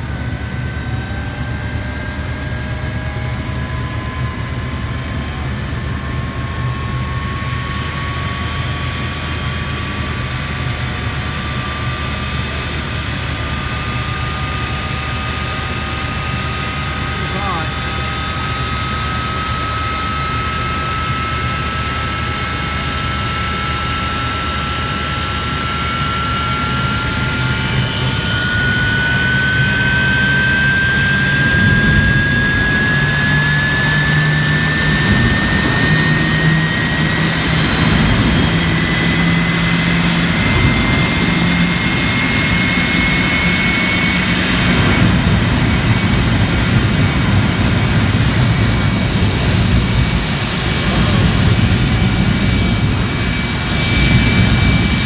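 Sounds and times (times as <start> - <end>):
jet engine whine: 0.0 - 55.0
heavy low roar of flame: 20.2 - 55.0.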